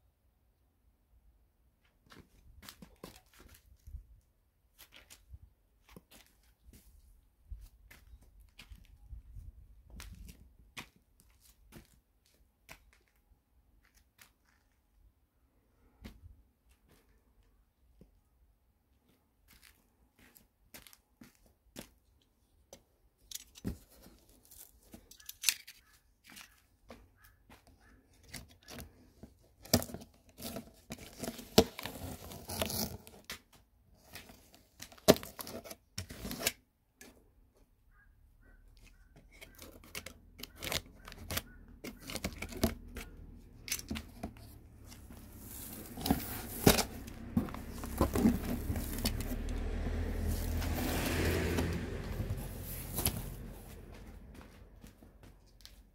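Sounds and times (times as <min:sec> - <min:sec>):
cardboard box clicks and scrapes: 0:28.2 - 0:33.3, 0:34.0 - 0:36.6, 0:39.3 - 0:43.1, 0:43.7 - 0:54.0
tape slit and torn off box: 0:34.9 - 0:36.6, 0:45.4 - 0:49.4.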